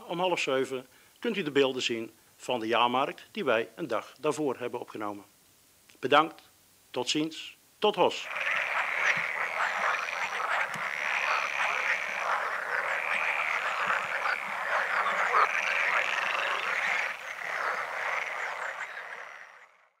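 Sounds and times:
frogs croaking: 0:08.2 - 0:20.0.

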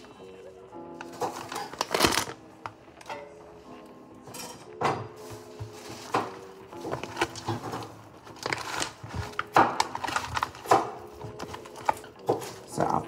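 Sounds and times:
soft background music: 0:00.0 - 0:13.0
kitchen knocks and clatter: 0:01.0 - 0:02.2, 0:04.2 - 0:13.0.

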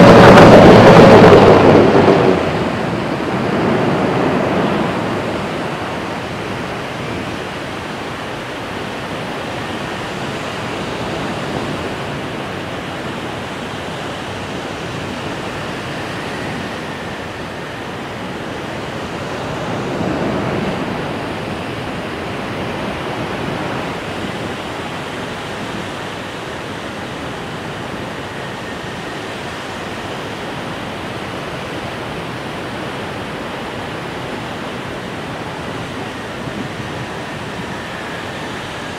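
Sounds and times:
ocean surf breaking: 0:00.0 - 0:28.1.

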